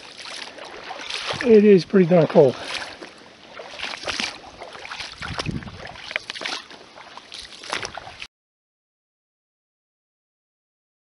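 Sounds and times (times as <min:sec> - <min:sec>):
footsteps sloshing through water: 0:00.0 - 0:08.3
running creek water: 0:00.0 - 0:08.3.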